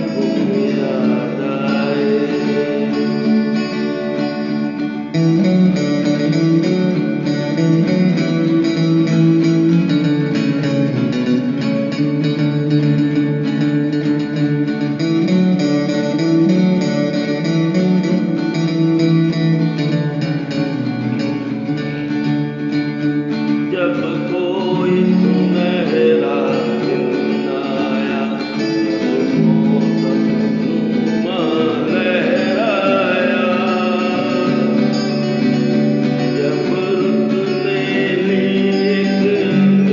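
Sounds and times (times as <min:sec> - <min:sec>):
person singing: 0:00.0 - 0:10.3, 0:23.5 - 0:39.9
acoustic guitar playing: 0:00.0 - 0:39.9.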